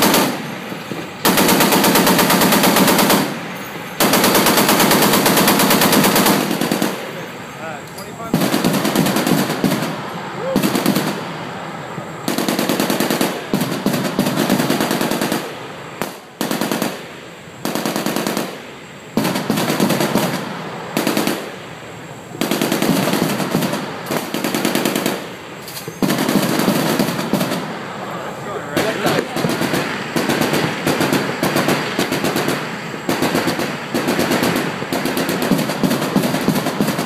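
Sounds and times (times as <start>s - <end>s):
machine gun automatic fire: 0.0s - 0.6s, 1.2s - 7.2s, 8.3s - 10.0s, 10.6s - 11.2s, 12.3s - 17.0s, 19.2s - 20.4s, 22.4s - 25.4s, 26.0s - 27.7s, 28.8s - 37.0s.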